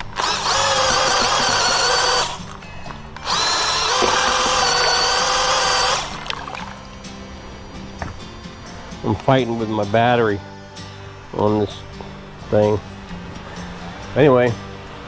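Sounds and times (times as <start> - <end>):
cordless drill motor whining: 0.0 - 11.8.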